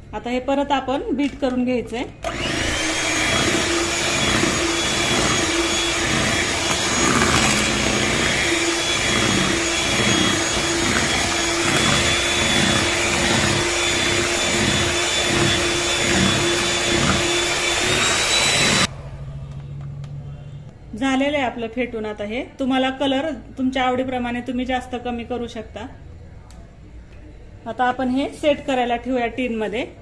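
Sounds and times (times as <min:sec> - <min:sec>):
electric hand mixer whining: 0:02.2 - 0:18.9.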